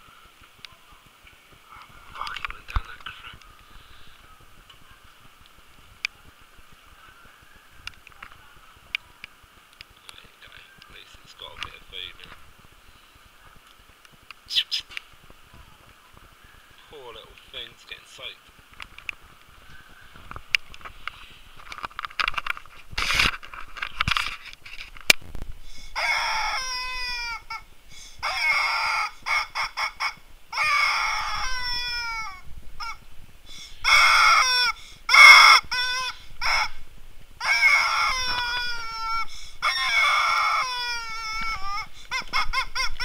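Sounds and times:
harsh bird calls: 0:25.8 - 0:36.8, 0:37.4 - 0:43.0.

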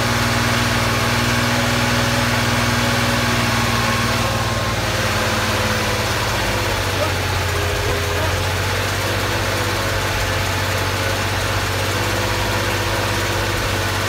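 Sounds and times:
car engine fast idle: 0:00.0 - 0:14.0.

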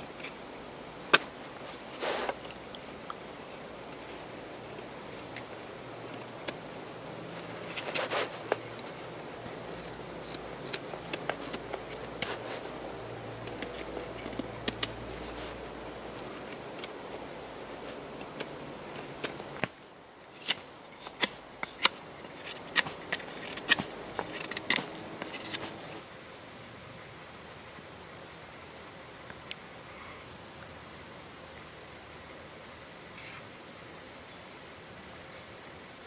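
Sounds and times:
knife shaving wood: 0:01.1 - 0:26.0.

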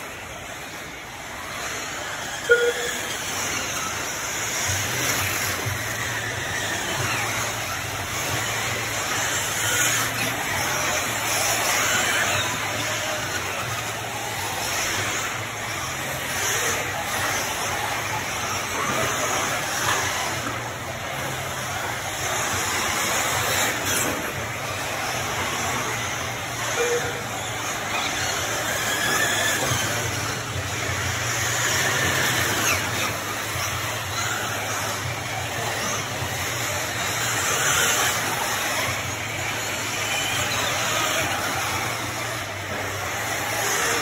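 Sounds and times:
electric rc car motors whining: 0:00.0 - 0:44.0.

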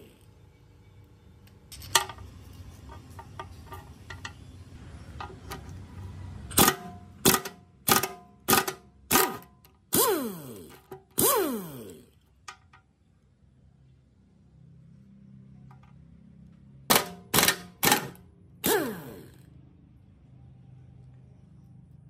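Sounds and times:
cordless power driver whirring: 0:10.0 - 0:12.1, 0:17.9 - 0:19.4.

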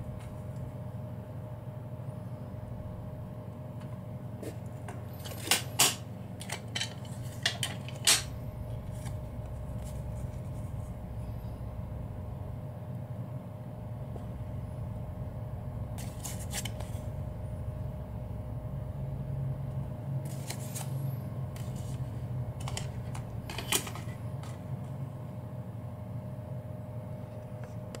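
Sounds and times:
low hum: 0:00.0 - 0:28.0
paper rustling: 0:16.0 - 0:17.1, 0:20.2 - 0:21.0.

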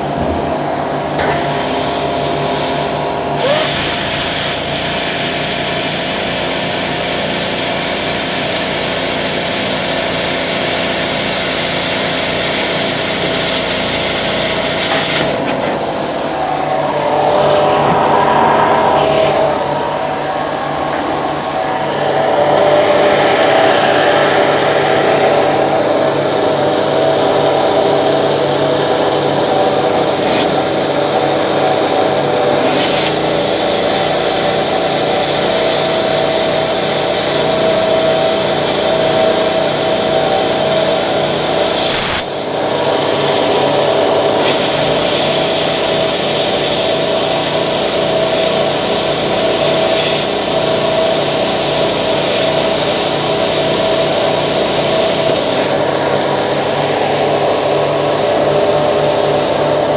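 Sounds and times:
steady hum: 0:00.0 - 0:59.9
plasma cutter hissing and crackling: 0:01.2 - 0:17.5, 0:30.0 - 0:30.9, 0:32.6 - 0:42.4, 0:43.2 - 0:43.5, 0:44.4 - 0:56.9.

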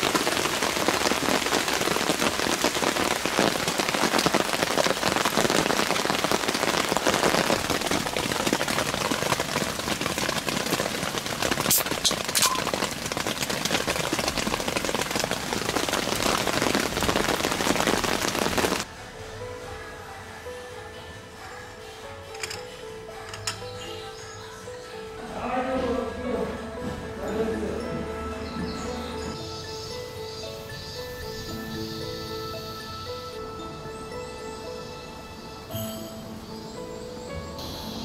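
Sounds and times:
heavy rain pouring: 0:00.0 - 0:19.4.

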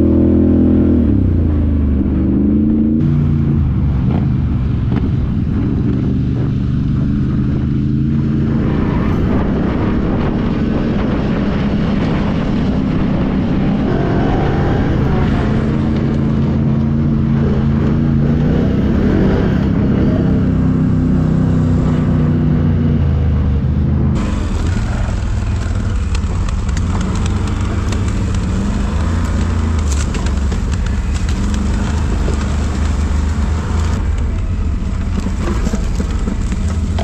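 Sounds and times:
atv engine running: 0:00.0 - 0:37.0
crackles over dry leaves and branches: 0:24.2 - 0:37.0.

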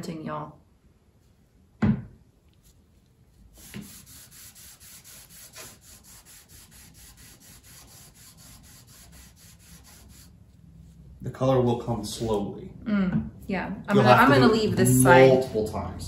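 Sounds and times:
rag rubbing wood: 0:03.6 - 0:10.4.

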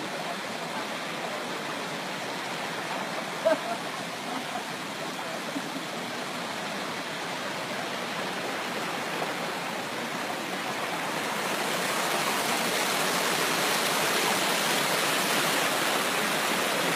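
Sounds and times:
mountain stream rushing over boulders: 0:00.0 - 0:16.9.

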